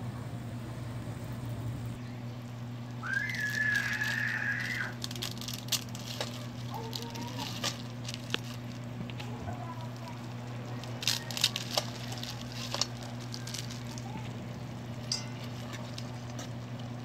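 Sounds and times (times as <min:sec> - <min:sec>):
low hum: 0:00.0 - 0:17.0
high whistle: 0:03.0 - 0:04.9
noodles crinkling from plastic wrapper: 0:03.0 - 0:17.0.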